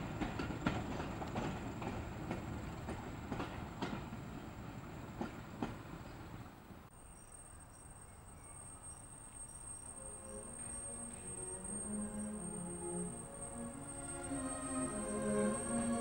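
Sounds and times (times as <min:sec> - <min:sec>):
train wheels knocking on rail joints: 0:00.0 - 0:04.4, 0:05.1 - 0:06.2
faint high steady whine: 0:07.0 - 0:16.0.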